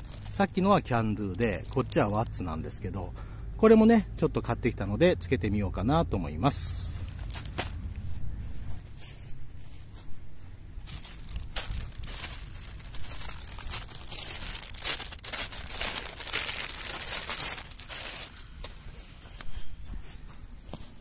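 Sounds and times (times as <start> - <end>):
plastic bag crinkling: 0.0 - 2.8, 7.0 - 7.9, 10.8 - 19.0.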